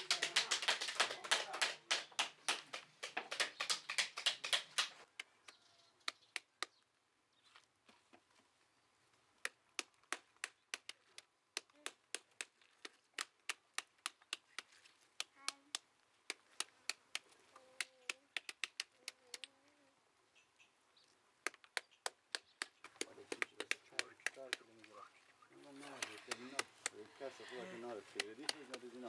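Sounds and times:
knives chopping pomegranates: 21.5 - 24.9.

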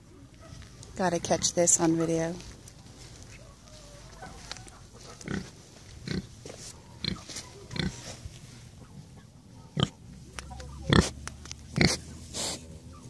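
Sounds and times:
pig grunting: 5.2 - 6.3, 7.0 - 8.0, 10.7 - 12.6.

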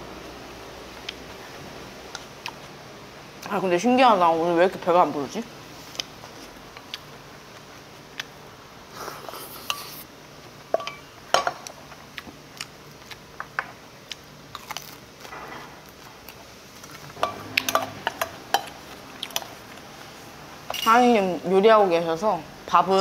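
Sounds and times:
utensils clinking against dishes: 10.8 - 11.6, 17.2 - 19.6, 20.7 - 21.3.

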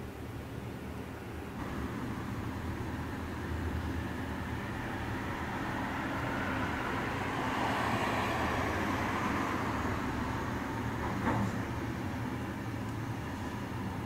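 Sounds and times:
low rumble and hiss: 0.0 - 14.0.

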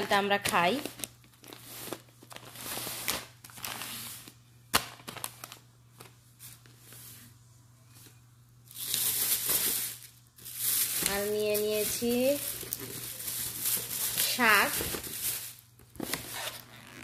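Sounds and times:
faint steady hum: 0.0 - 17.0
plastic bag crinkling: 0.5 - 5.6, 8.7 - 17.0.

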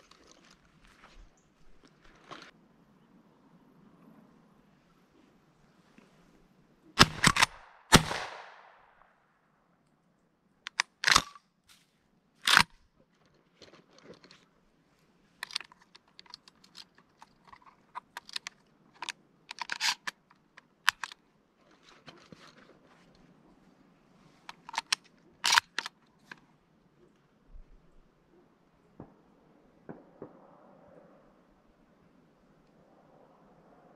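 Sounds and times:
small crunching and clicking: 0.0 - 2.6, 10.7 - 11.8, 12.4 - 14.5, 15.4 - 23.3, 24.5 - 26.5
shotgun shot echoing: 7.0 - 8.9.

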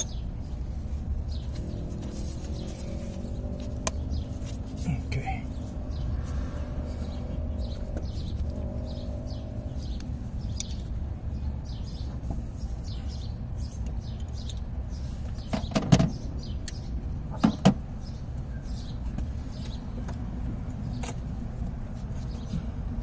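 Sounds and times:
steady low rumble: 0.0 - 15.4.

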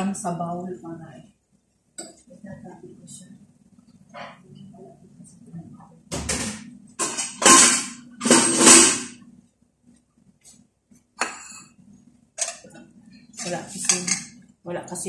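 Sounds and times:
dishes knocking and rattling: 6.1 - 9.2, 12.4 - 12.8.

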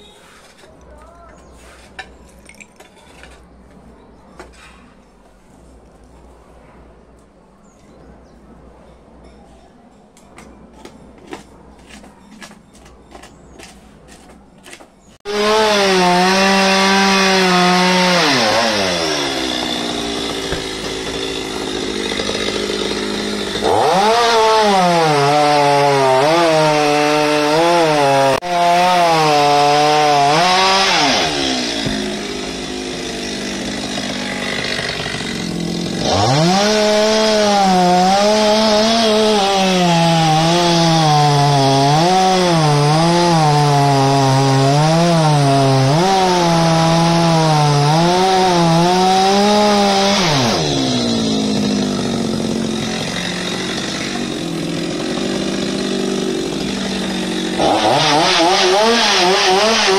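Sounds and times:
chainsaw cutting wood: 14.7 - 59.9.

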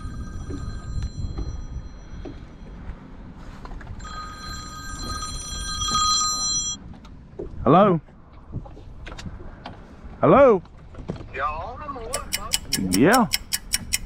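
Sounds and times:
phone ringtone: 0.0 - 2.9, 4.0 - 6.8.

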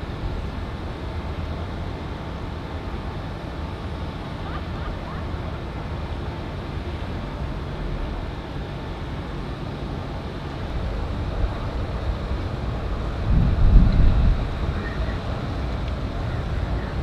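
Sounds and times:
ship engine rumble: 0.0 - 17.0
wind buffeting microphone: 10.6 - 17.0.

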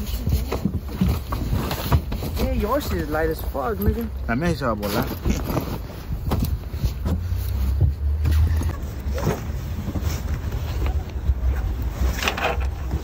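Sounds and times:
bags rustling: 0.0 - 7.8
wind rumbling on microphone: 5.1 - 13.0.

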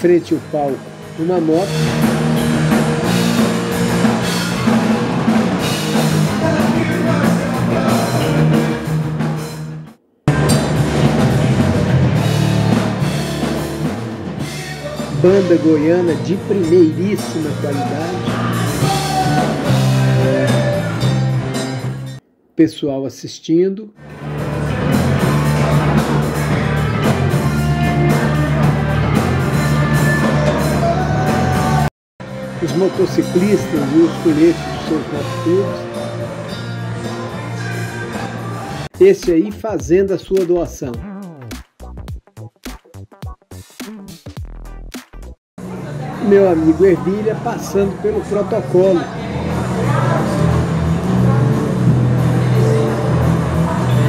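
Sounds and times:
drum kit: 0.0 - 22.2, 24.0 - 54.0
sustained bass line: 0.0 - 22.2, 24.0 - 54.0
rock band playing live: 0.4 - 9.6, 10.3 - 22.2, 24.0 - 38.9, 48.2 - 54.0
electric guitar: 17.2 - 22.2, 24.0 - 38.8.

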